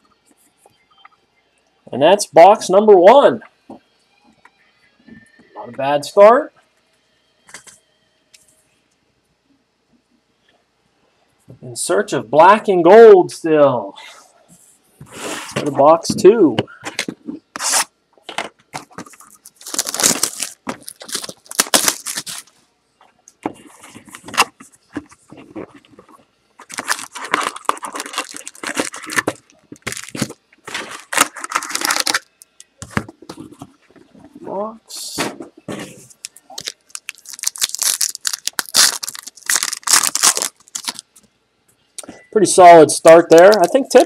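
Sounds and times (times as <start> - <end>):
plastic wrap tearing and rustling: 18.8 - 22.6, 26.6 - 32.4, 36.1 - 41.2
handling sounds: 23.3 - 41.2.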